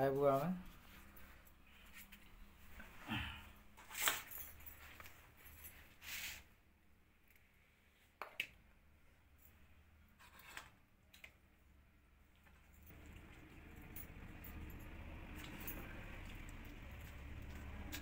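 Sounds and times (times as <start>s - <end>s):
handling rustles and scrapes: 3.8s - 6.6s, 9.5s - 10.8s.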